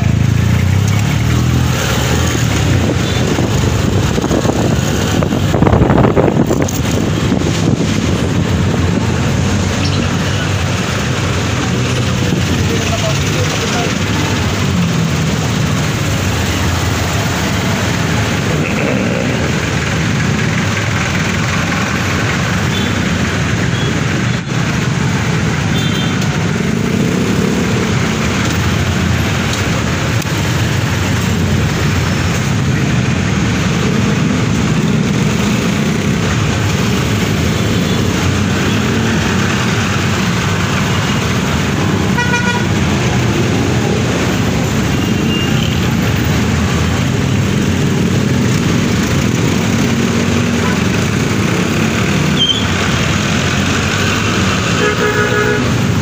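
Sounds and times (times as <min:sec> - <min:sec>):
motorcycle engine and road noise: 0:00.0 - 0:56.0
vehicle horn toots: 0:42.2 - 0:42.7, 0:54.8 - 0:55.8.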